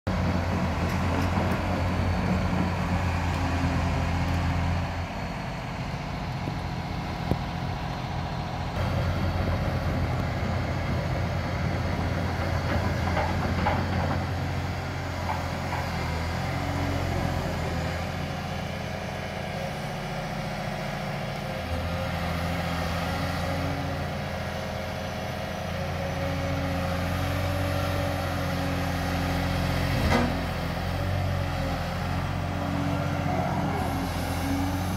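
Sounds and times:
excavator diesel engine running: 0.1 - 34.9.

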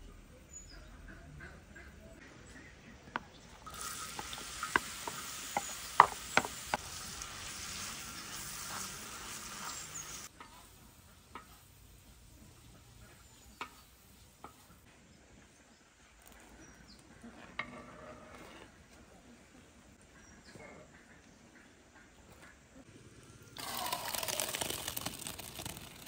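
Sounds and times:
onions sizzling in hot oil: 3.6 - 14.9, 23.6 - 26.0
wooden spatula tapping: 4.1 - 6.8.

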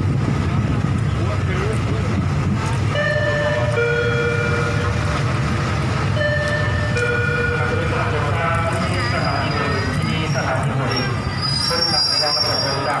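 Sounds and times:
train running: 0.0 - 13.0
two-note tone: 3.0 - 4.9, 6.2 - 7.8.

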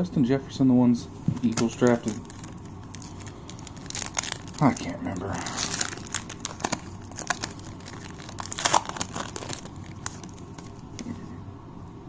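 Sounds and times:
foil wrapper crinkling and tearing: 1.4 - 11.0.

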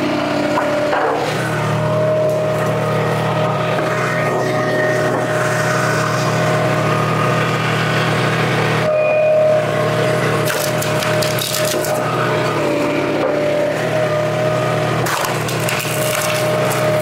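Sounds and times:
gasoline engine running: 0.0 - 17.0
wood cracking and splintering: 10.4 - 12.1, 15.0 - 17.0.

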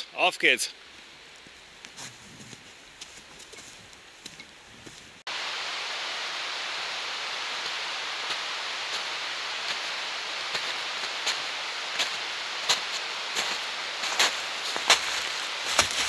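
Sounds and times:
steady rushing hiss: 0.0 - 16.0
footsteps on leaves and snow: 0.9 - 5.2, 7.7 - 16.0.

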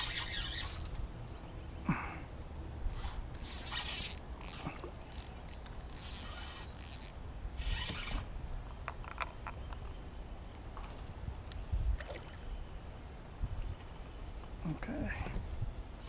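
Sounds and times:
fishing reel whirring: 0.0 - 1.4, 2.9 - 8.3.

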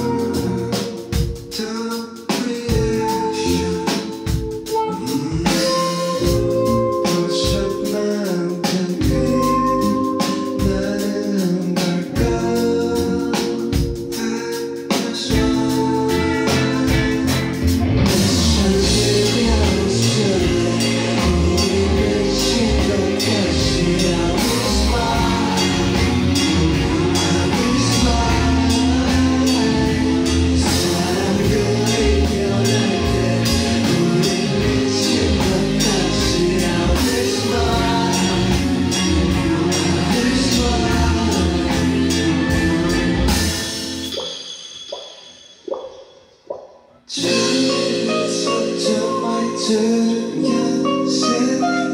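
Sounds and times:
electric bass: 0.0 - 44.2
live rock band playing: 0.0 - 45.3, 47.1 - 51.9
drum kit: 0.0 - 46.0.

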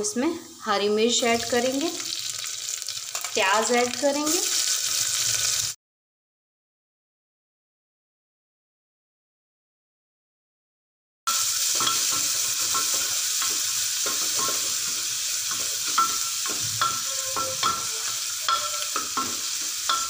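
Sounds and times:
vegetables sizzling in hot oil: 0.3 - 5.8, 11.3 - 20.0
spatula scraping and knocking pot: 11.7 - 20.0.

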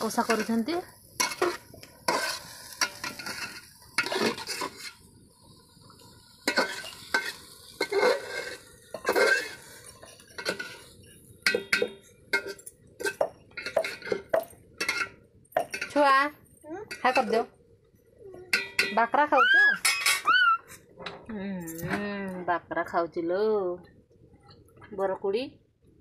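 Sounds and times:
light sizzle: 0.0 - 26.0
metal ladle scraping pot: 1.2 - 5.0, 6.4 - 16.0, 19.8 - 20.8.

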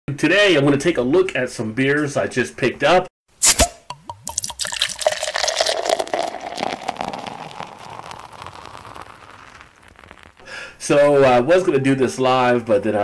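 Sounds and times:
beer pouring and fizzing: 3.9 - 10.5.

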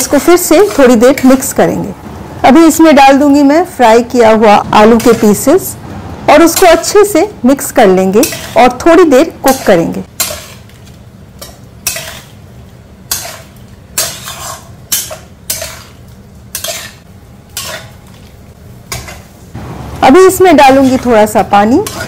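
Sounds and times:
spatula scraping a pan: 8.2 - 8.7, 9.5 - 10.8, 11.4 - 12.4, 13.1 - 18.3, 20.6 - 22.0.

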